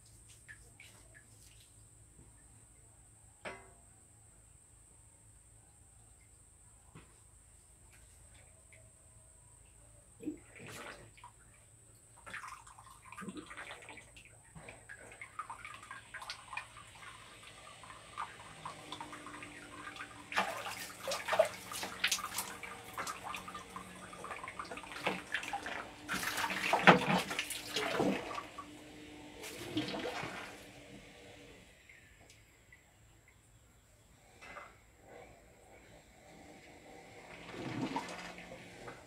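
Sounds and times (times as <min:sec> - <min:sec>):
water splashing: 0:12.2 - 0:28.7, 0:29.4 - 0:30.6.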